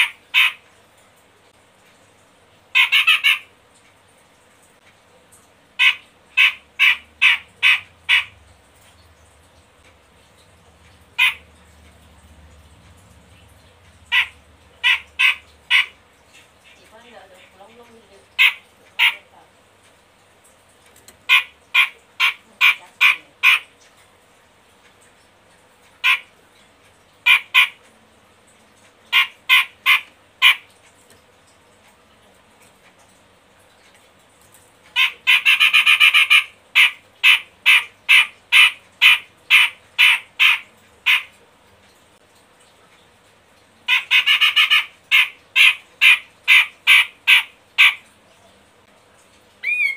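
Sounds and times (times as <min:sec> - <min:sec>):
bulbul harsh rasping calls: 0:00.0 - 0:00.6, 0:02.8 - 0:03.5, 0:05.8 - 0:08.4, 0:11.2 - 0:11.5, 0:14.0 - 0:16.8, 0:35.0 - 0:41.3, 0:43.9 - 0:48.0, 0:49.6 - 0:49.9.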